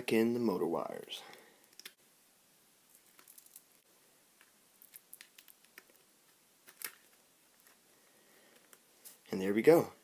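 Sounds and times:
hands handling wires: 0:02.9 - 0:07.9, 0:08.5 - 0:09.3.

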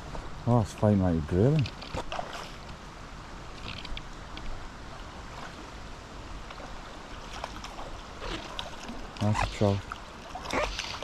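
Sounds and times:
stony river flowing: 0:00.0 - 0:11.0
fish thrashing and splashing: 0:07.2 - 0:11.0.

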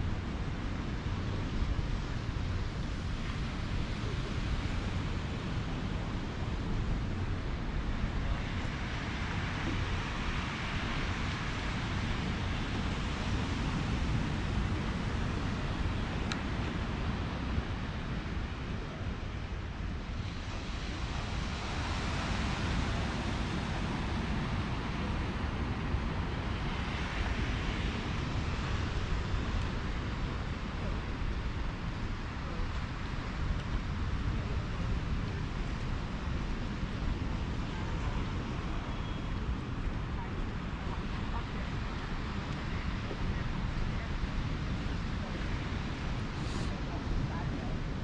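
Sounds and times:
ocean surf washing on beach: 0:00.0 - 0:48.0.

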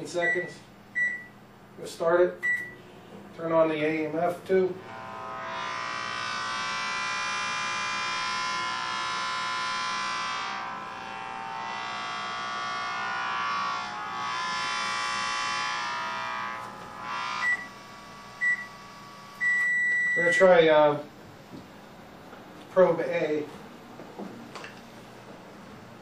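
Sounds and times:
microwave timer beeps: 0:00.2 - 0:01.4, 0:02.4 - 0:02.8, 0:17.4 - 0:17.8, 0:18.4 - 0:20.4
electromagnetic detector buzzing drone: 0:04.6 - 0:20.5.

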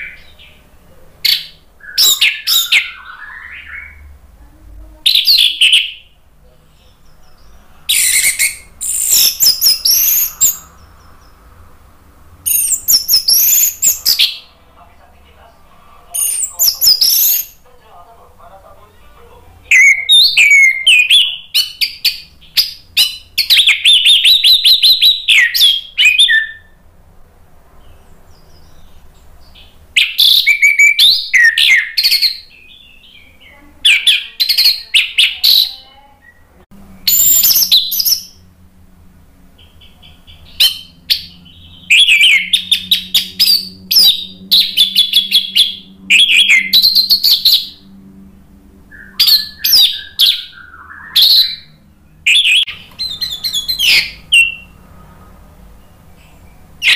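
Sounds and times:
thrush singing chattering phrases: 0:00.0 - 0:21.6.

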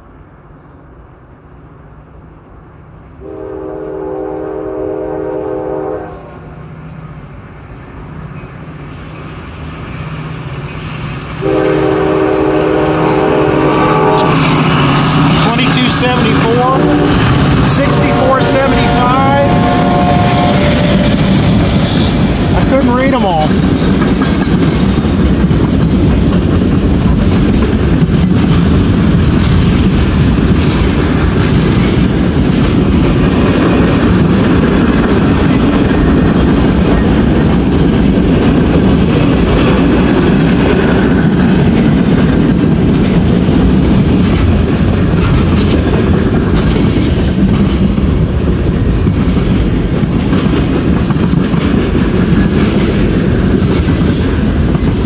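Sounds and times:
train wheels rumbling on rail: 0:00.0 - 0:55.0.

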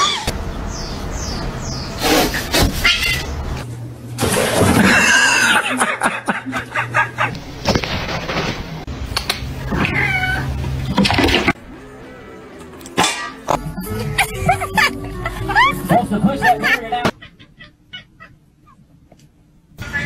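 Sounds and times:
cats meowing and yowling: 0:09.7 - 0:10.6.

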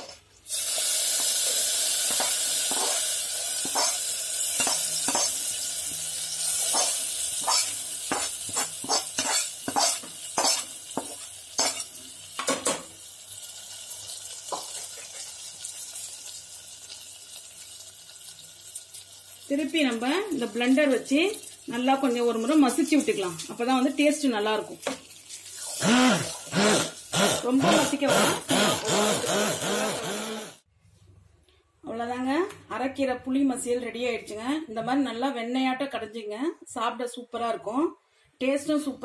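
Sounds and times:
hot oil sizzling: 0:00.0 - 0:28.0
metal ladle scraping and tapping pan: 0:02.1 - 0:03.0, 0:03.6 - 0:04.0, 0:04.6 - 0:05.4, 0:06.6 - 0:12.8.

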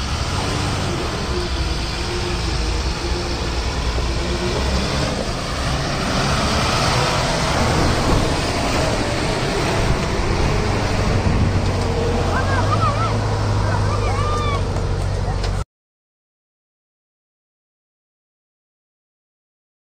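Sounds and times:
heavy diesel engines under load: 0:00.0 - 0:15.6.

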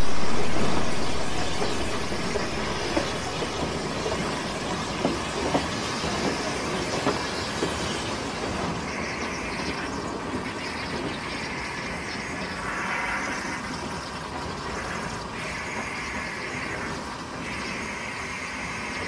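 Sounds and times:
steam hissing: 0:00.0 - 0:19.0
steam locomotive rumbling: 0:00.0 - 0:19.0.

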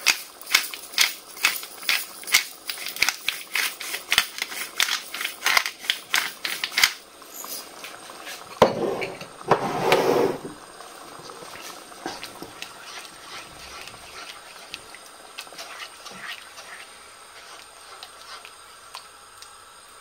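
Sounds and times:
pepper grinder clicking: 0:00.0 - 0:07.0.

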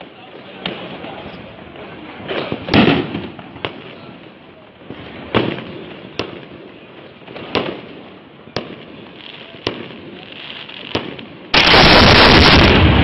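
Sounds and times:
firecracker bangs with echo: 0:02.3 - 0:03.8, 0:10.9 - 0:13.0.

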